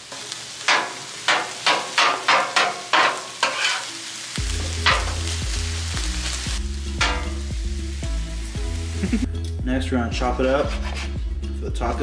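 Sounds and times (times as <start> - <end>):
meat sizzling: 0.0 - 9.5
griddle scraper chopping strikes: 0.7 - 3.8
background music: 1.8 - 12.0.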